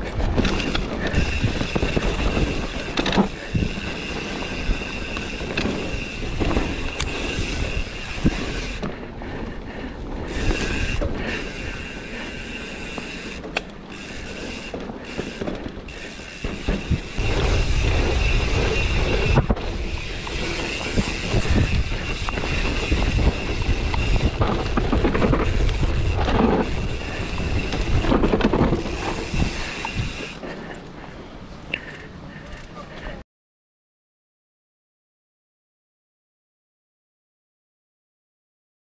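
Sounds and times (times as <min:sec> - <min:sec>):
bike rattling and clicking: 0:00.0 - 0:33.2
bike tyres rolling over dirt: 0:00.0 - 0:33.2
wind on microphone: 0:16.4 - 0:30.4.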